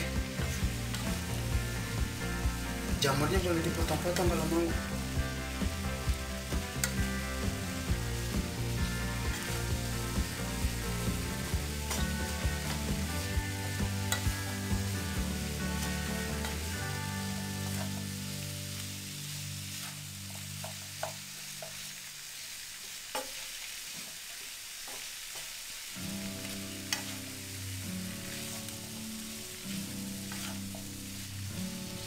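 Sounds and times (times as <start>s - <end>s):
mushrooms sizzling in a frying pan: 0.0s - 32.0s
spatula clicking on pan: 6.8s - 7.0s.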